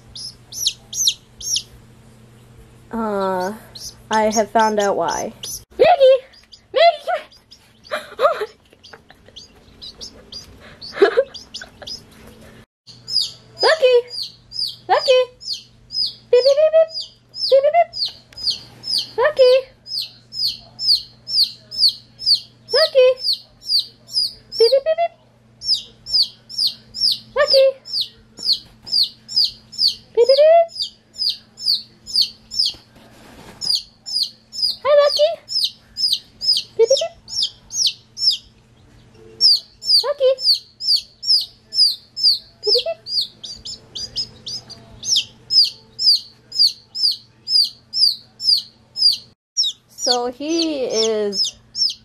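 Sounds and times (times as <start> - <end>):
baby chick peeping loudly: 0.0 - 52.0.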